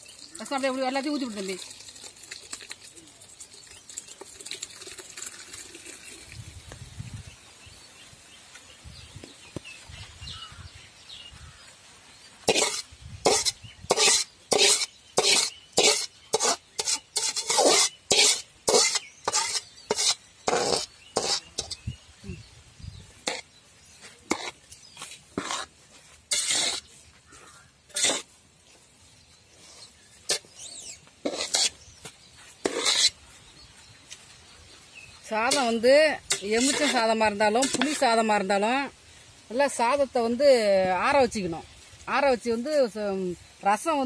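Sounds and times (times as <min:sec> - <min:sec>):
steel spoon scraping metal pan: 0:12.5 - 0:21.9, 0:24.3 - 0:24.6, 0:25.4 - 0:25.7, 0:26.3 - 0:27.0, 0:27.9 - 0:28.3, 0:30.3 - 0:31.9, 0:32.6 - 0:33.2, 0:35.5 - 0:38.1.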